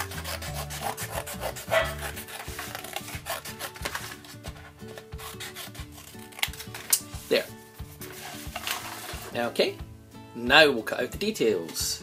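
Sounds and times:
scissors cutting paper: 0:00.0 - 0:07.1.

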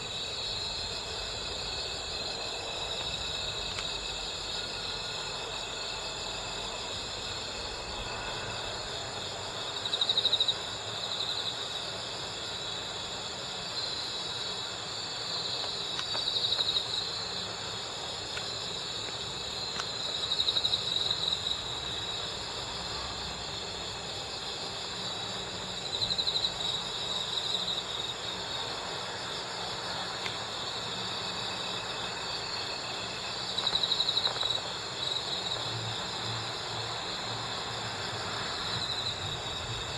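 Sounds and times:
cricket pulsed trills: 0:00.0 - 0:39.9
crickets chirping chorus: 0:00.0 - 0:39.9.

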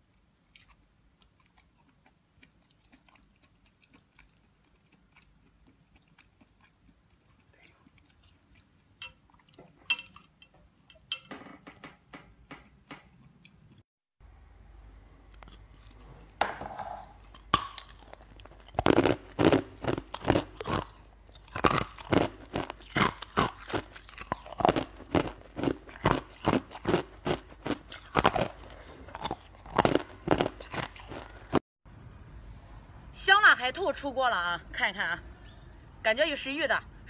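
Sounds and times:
crunching and chewing: 0:00.0 - 0:11.0, 0:12.6 - 0:13.9, 0:15.2 - 0:31.6.

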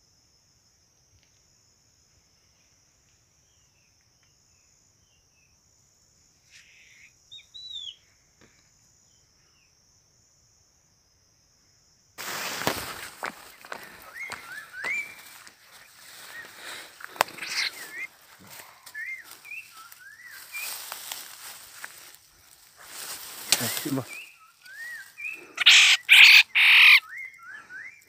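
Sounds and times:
insect drone: 0:00.0 - 0:28.0
bird chirps: 0:06.5 - 0:08.2, 0:13.3 - 0:22.6, 0:23.4 - 0:28.0.

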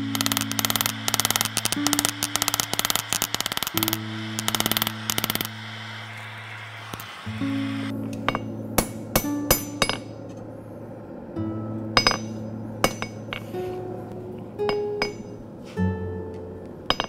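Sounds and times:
hammer striking steel on anvil: 0:00.0 - 0:05.8, 0:08.0 - 0:10.4, 0:11.9 - 0:13.6, 0:14.6 - 0:15.4
background music with low notes: 0:00.0 - 0:17.0.

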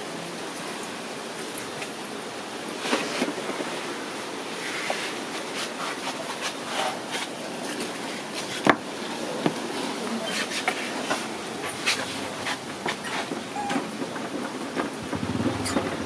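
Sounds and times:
plastic tray scraping and knocking: 0:14.2 - 0:16.0.

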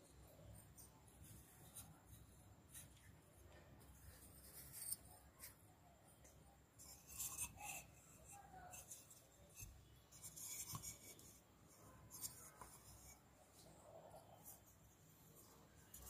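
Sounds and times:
clay pots scraping and clinking: 0:06.8 - 0:14.8.

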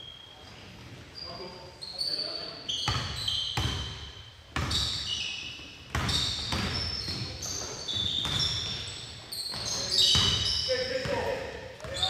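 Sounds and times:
sneaker squeaks: 0:00.0 - 0:12.0.

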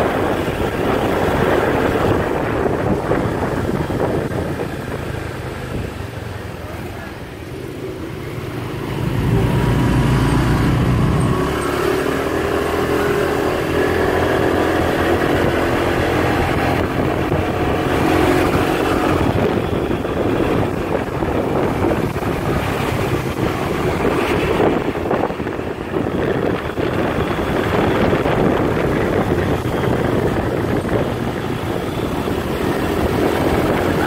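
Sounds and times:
cars passing close by: 0:00.0 - 0:34.0
motorbike engine humming: 0:00.0 - 0:34.0
wind rumble on microphone: 0:00.0 - 0:34.0.

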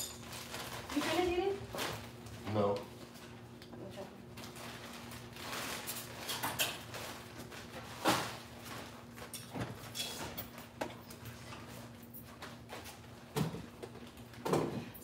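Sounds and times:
plastic bag rustling: 0:00.1 - 0:02.4, 0:04.3 - 0:09.3.

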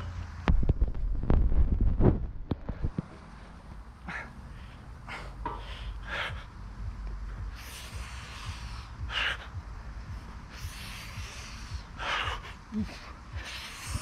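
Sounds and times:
man breathing hard: 0:02.8 - 0:14.0.

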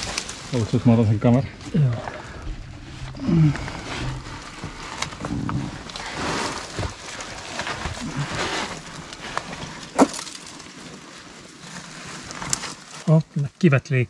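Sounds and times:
person breathing hard and grunting: 0:01.9 - 0:04.4
clicks and scrapes on rock: 0:02.0 - 0:13.0.

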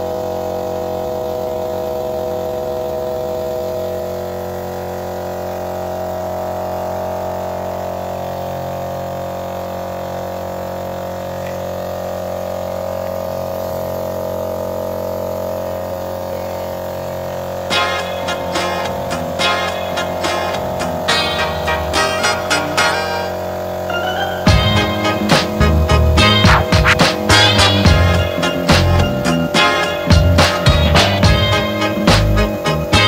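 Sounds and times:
air compressor droning: 0:00.0 - 0:33.0.

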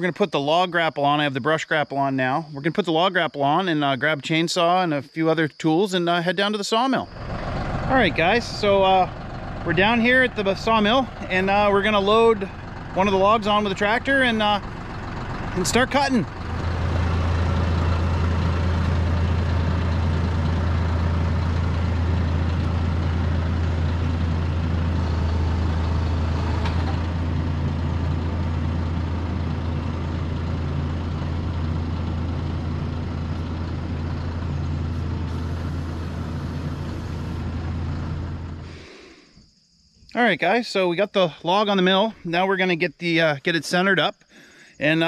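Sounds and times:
tractor diesel engine running: 0:07.0 - 0:39.0.

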